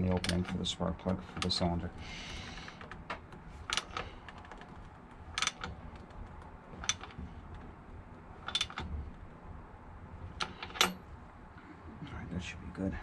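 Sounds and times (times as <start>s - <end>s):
wrench clicking: 5.4s - 5.8s.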